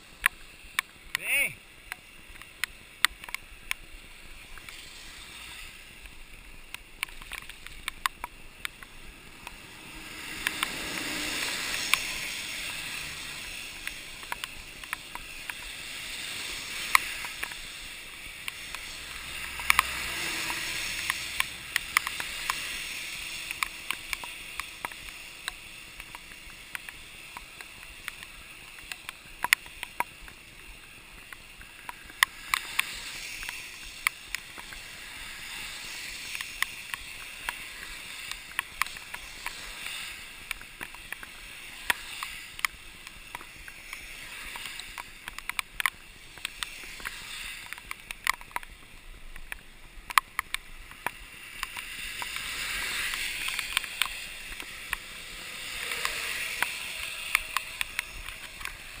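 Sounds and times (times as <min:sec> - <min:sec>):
bike tyres hissing on wet road: 0:00.0 - 0:59.0
raindrops ticking on camera: 0:00.0 - 0:59.0.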